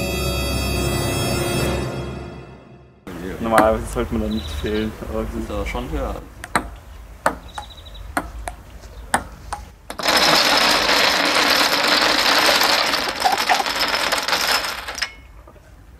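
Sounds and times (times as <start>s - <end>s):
ping pong ball clicking: 6.4s - 10.0s
dominoes toppling clatter: 10.0s - 15.2s.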